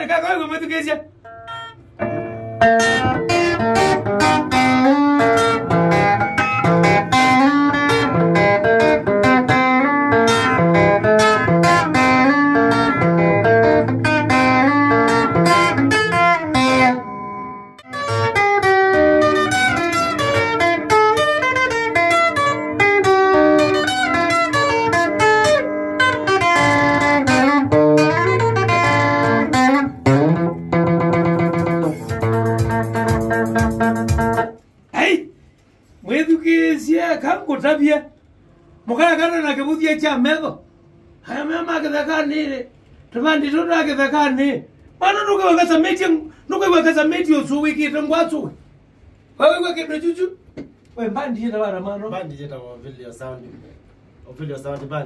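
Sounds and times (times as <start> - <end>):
quick picked guitar notes: 1.2 - 34.7.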